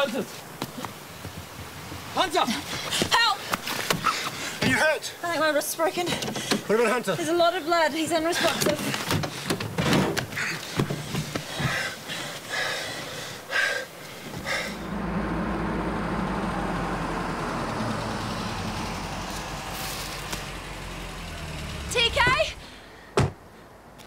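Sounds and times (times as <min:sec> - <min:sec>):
car driving along a road: 0:14.3 - 0:23.0.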